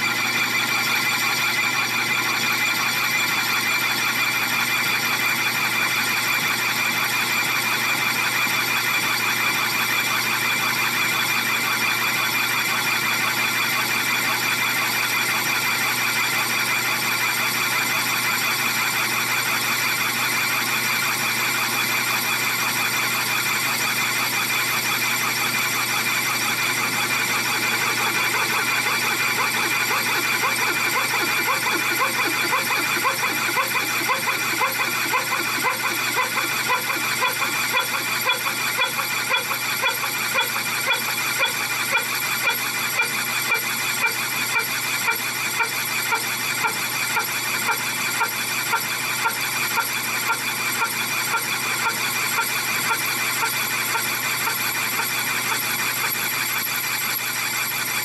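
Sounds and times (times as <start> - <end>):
lathe running: 25.2 - 47.9
regular pulsing beat: 26.6 - 44.2
high-pitched cutting tone: 27.1 - 42.1.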